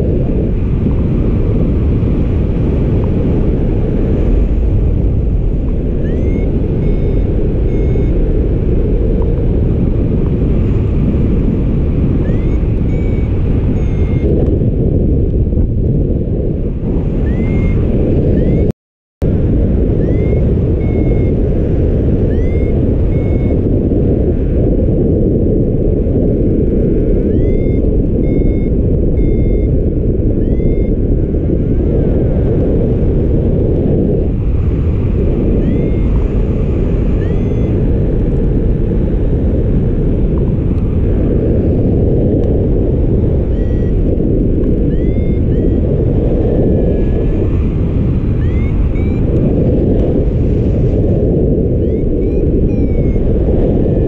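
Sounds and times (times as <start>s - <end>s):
strong wind on microphone: 0.0s - 54.0s
faint short high beeps: 6.0s - 8.2s, 12.2s - 14.3s, 17.3s - 17.8s, 20.0s - 21.3s, 22.3s - 23.6s, 27.3s - 29.7s, 30.4s - 30.9s, 35.6s - 36.0s, 43.5s - 43.9s, 44.9s - 45.8s, 48.4s - 49.3s.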